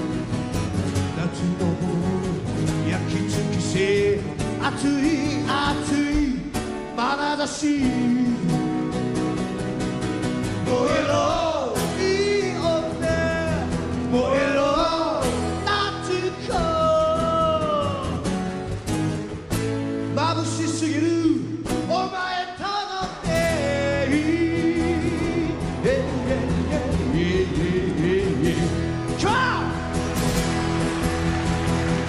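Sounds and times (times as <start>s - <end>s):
strummed acoustic guitars: 0.0s - 32.0s
man singing: 0.9s - 8.9s, 10.6s - 18.3s, 20.1s - 29.8s.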